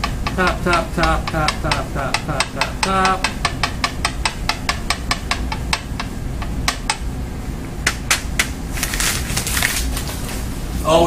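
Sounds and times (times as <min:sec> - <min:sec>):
taps on paper tube: 0:00.0 - 0:07.1, 0:07.8 - 0:09.1
paper crinkling: 0:08.7 - 0:10.6.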